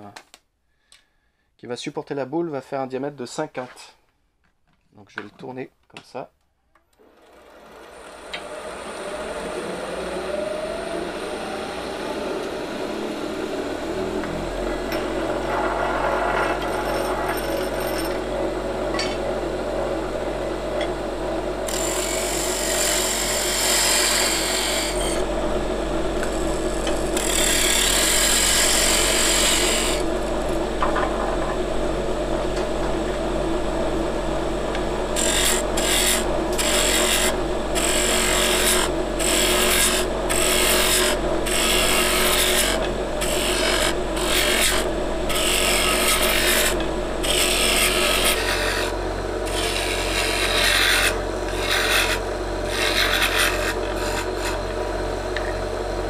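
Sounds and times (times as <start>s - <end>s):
wood lathe motor whine: 7.0s - 56.0s
turning tool cutting wood: 21.6s - 25.3s, 26.1s - 30.6s, 34.7s - 54.8s.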